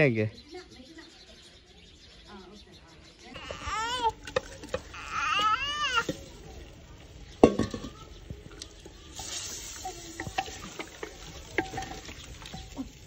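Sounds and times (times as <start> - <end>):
oil sizzling: 3.4 - 13.0
wooden spatula scraping clay pot: 7.4 - 13.0.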